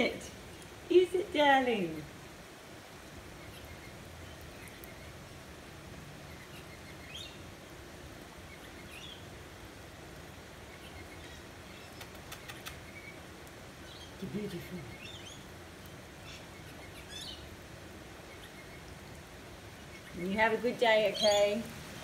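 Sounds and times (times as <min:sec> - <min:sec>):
outdoor background hiss: 0:00.0 - 0:22.0
faint clicks: 0:11.9 - 0:13.6.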